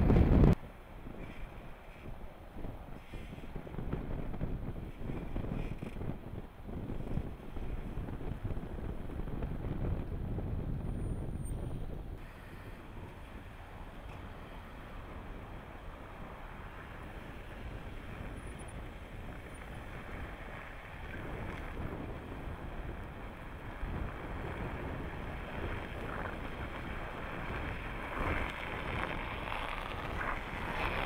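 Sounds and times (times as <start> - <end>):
wind noise on microphone: 0.0 - 31.0
tyres crunching through snow: 12.2 - 31.0.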